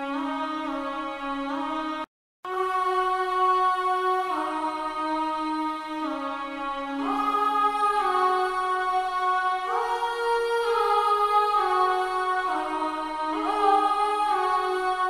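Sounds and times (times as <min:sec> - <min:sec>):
choir vocal pad holding chords: 0:01.6 - 0:15.0.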